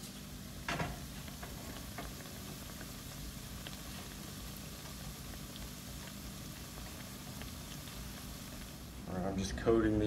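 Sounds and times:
deep-frying bubbling sizzle: 0.0s - 10.0s.

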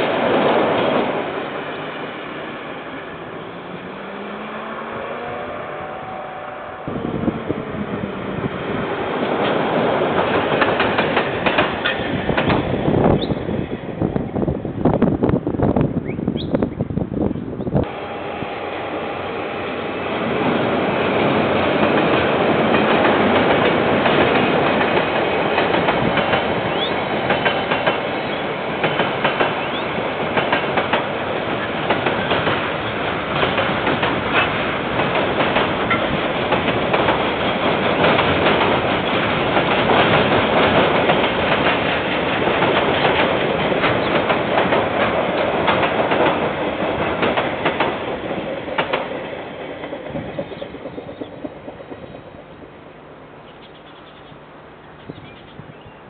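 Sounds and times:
wheels clicking over rail joints: 9.1s - 13.3s, 21.7s - 52.4s.

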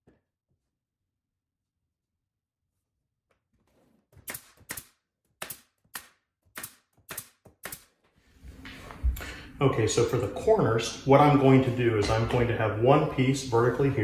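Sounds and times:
nail gun firing into wood: 4.2s - 8.0s.

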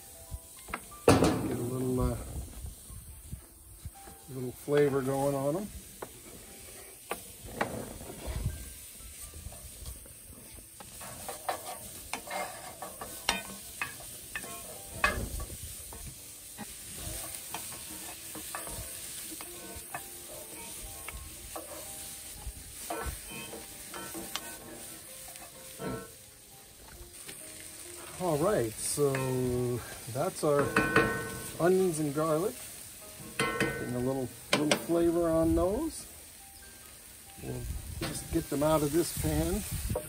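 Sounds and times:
onion and garlic sizzling in pan: 0.0s - 40.0s
utensil scraping pan: 10.8s - 26.1s, 30.4s - 32.1s.

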